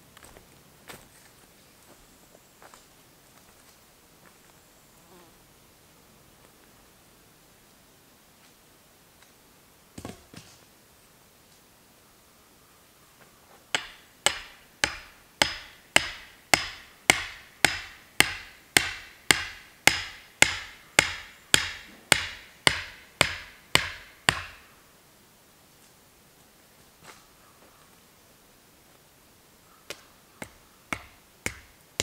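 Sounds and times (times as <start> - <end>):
axe driving wooden stake: 13.8 - 24.6, 29.9 - 31.8.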